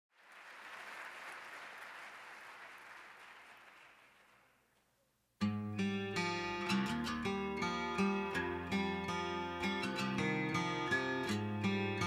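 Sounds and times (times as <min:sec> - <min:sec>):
audience applauding: 0:00.1 - 0:04.7
acoustic guitar music: 0:05.4 - 0:12.0.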